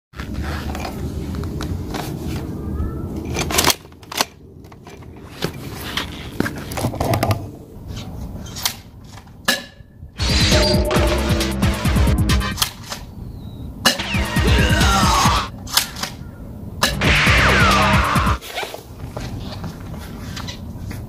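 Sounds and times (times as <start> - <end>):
steady low rumble: 13.8 - 15.5, 16.8 - 18.4.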